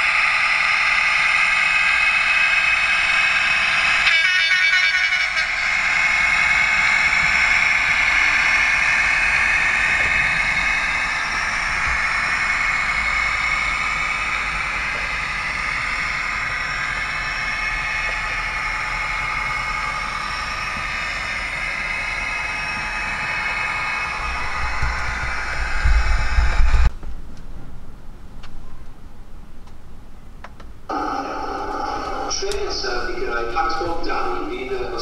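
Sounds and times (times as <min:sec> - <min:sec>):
model train running: 0:00.0 - 0:26.9, 0:30.9 - 0:35.0.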